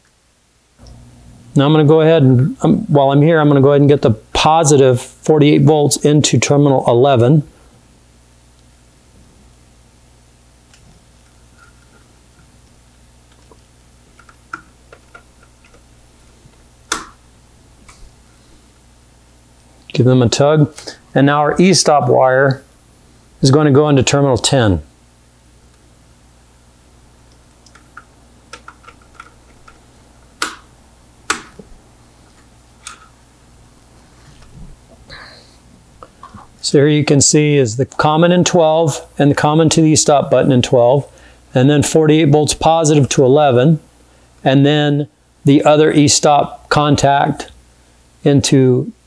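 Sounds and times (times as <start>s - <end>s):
hands handling wires: 13.3s - 17.2s, 27.3s - 30.7s, 31.3s - 33.2s.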